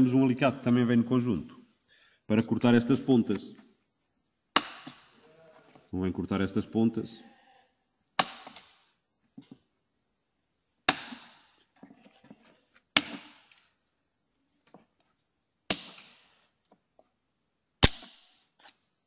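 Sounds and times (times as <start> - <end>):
pliers snipping metal staples: 17.8 - 18.3.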